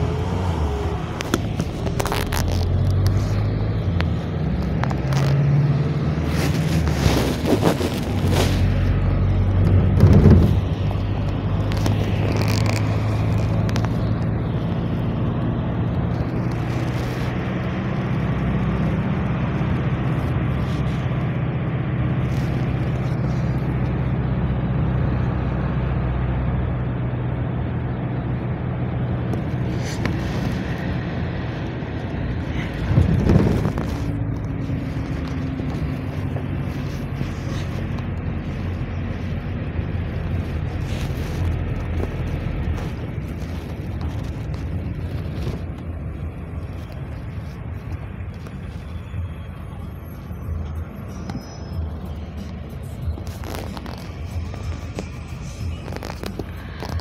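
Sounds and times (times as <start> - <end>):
engine drone: 0.0 - 57.0
road noise: 0.0 - 57.0.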